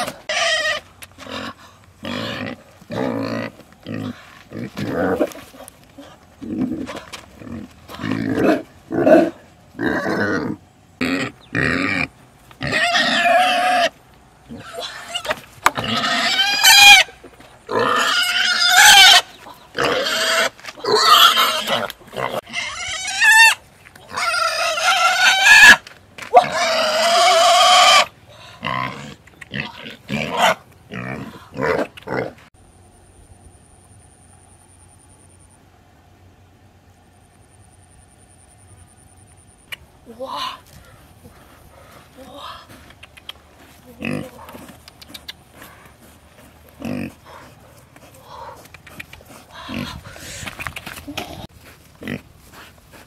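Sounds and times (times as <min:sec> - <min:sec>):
young pig squealing: 0:00.0 - 0:04.1, 0:09.8 - 0:13.9, 0:14.5 - 0:32.2.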